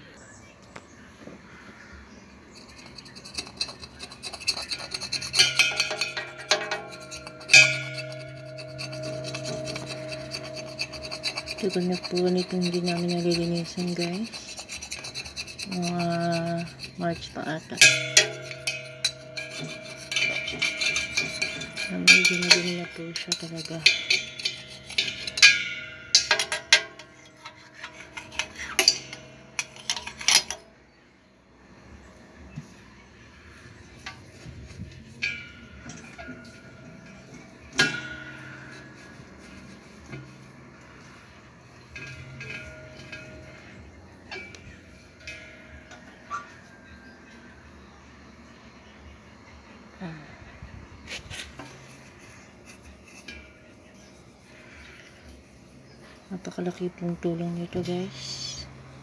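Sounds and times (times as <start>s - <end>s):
metal tool scraping steel bowl: 2.4s - 30.8s, 32.9s - 48.6s, 51.0s - 59.0s
metal bowl clank: 2.5s - 30.8s, 33.4s - 48.9s
metallic clinks: 2.6s - 30.7s, 33.8s - 48.9s
bowl ringing tone: 5.1s - 30.6s, 33.4s - 49.0s.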